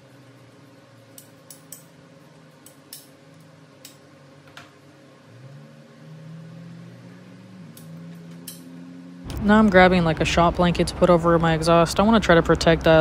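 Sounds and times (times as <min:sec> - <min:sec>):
steady low hum: 0:00.0 - 0:13.0
rising hum: 0:03.4 - 0:13.0.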